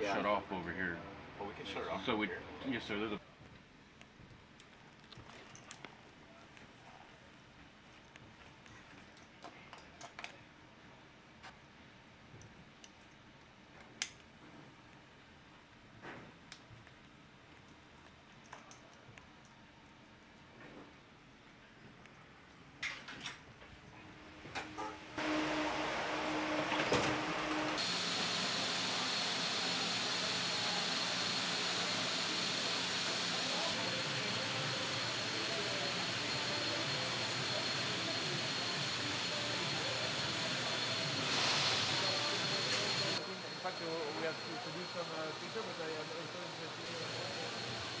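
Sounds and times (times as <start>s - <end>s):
machinery hum: 24.0s - 48.0s
ventilation rush with high whine: 24.1s - 48.0s.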